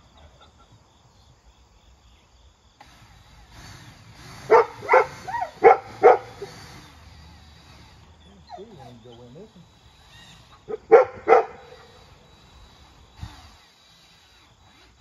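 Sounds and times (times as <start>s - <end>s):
dog barking: 4.5s - 6.5s, 10.7s - 11.8s.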